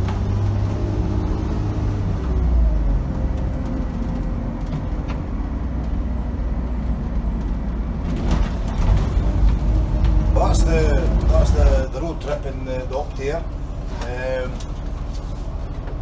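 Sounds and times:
diesel engine rumbling: 0.0 - 16.0
road noise: 0.0 - 16.0.

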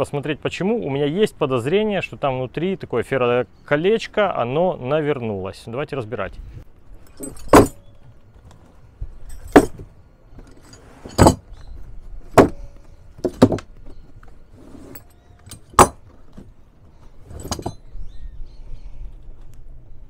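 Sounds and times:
metal hand tools clinking: 7.0 - 7.9, 9.2 - 9.8, 10.4 - 11.6, 14.0 - 16.0, 17.3 - 17.8.

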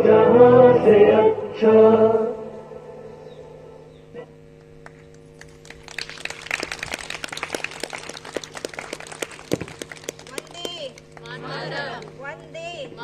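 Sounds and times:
faint steady hum: 0.0 - 13.0
audience clapping: 4.8 - 12.2.

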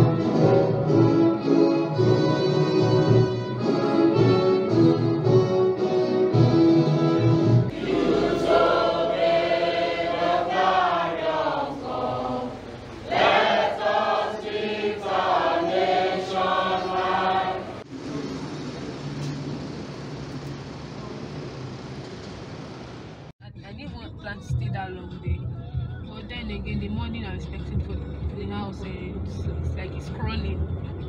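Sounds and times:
music: 0.0 - 12.4, 23.4 - 31.0
crowd singing an anthem: 7.7 - 17.8
background noise: 7.7 - 25.4.

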